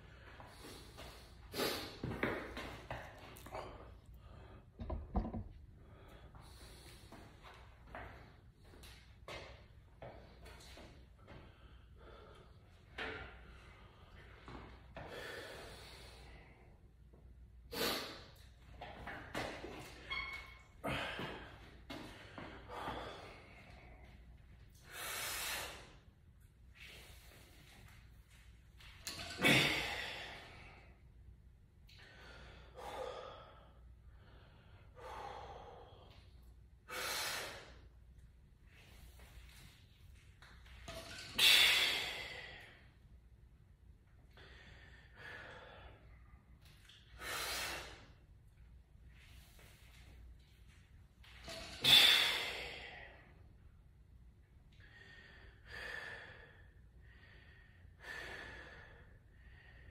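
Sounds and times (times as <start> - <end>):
man breathing hard: 11.2 - 16.9, 20.8 - 26.0, 29.1 - 31.1, 31.9 - 38.0, 41.1 - 43.0, 44.3 - 46.4, 47.2 - 48.2, 51.4 - 53.5, 54.8 - 59.9.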